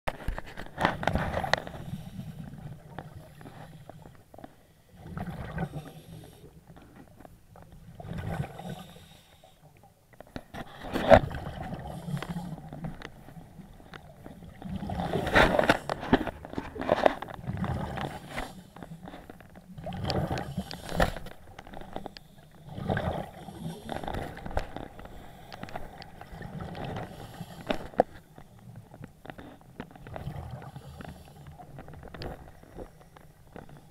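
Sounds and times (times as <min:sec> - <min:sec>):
exhaled bubbles gurgling: 0:04.9 - 0:06.6, 0:07.8 - 0:09.0, 0:19.6 - 0:20.8, 0:22.6 - 0:24.5.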